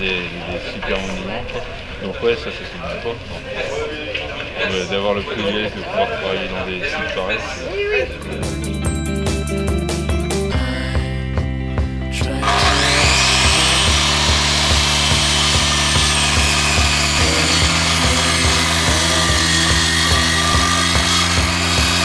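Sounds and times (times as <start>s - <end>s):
background music with steady beat: 8.1s - 22.0s
power tool cutting wood: 12.4s - 22.0s.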